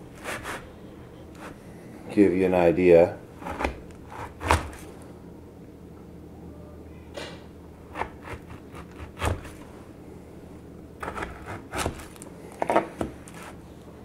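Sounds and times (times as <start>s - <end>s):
knife crunching through granola bar: 11.0s - 13.6s.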